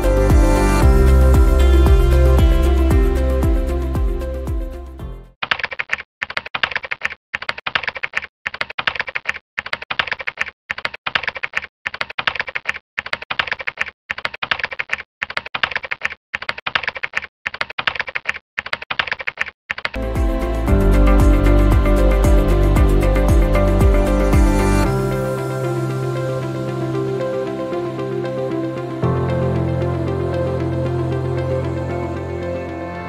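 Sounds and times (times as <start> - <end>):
music: 0.0 - 5.3, 20.0 - 33.0
computer keyboard typing: 5.4 - 20.0.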